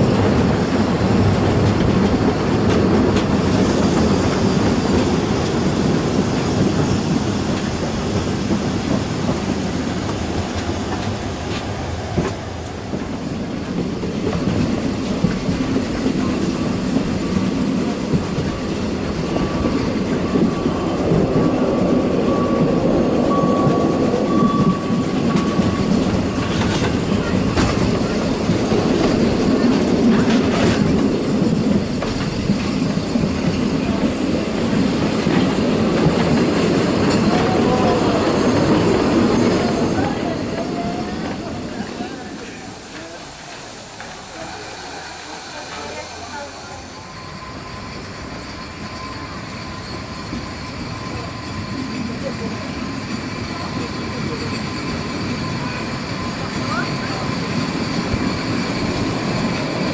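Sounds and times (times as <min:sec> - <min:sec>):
train wheels rumbling on rails: 0:00.0 - 0:59.9
wheel squeal: 0:34.7 - 0:59.9.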